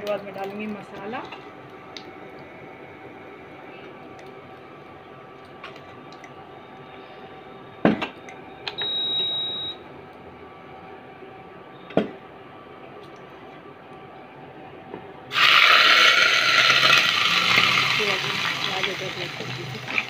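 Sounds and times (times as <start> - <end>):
high steady beep: 8.8 - 9.8
seeds frying in oil: 15.3 - 20.0.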